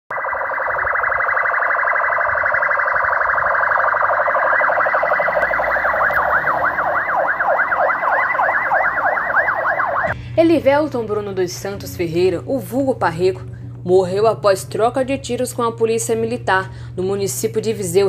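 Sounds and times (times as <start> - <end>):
electronic police siren: 0.1 - 10.2.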